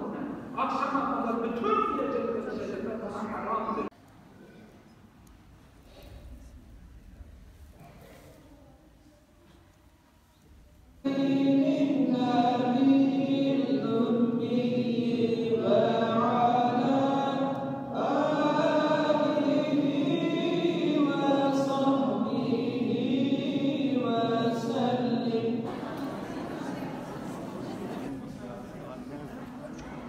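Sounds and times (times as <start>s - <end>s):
voices chanting melodically: 11.0s - 28.2s.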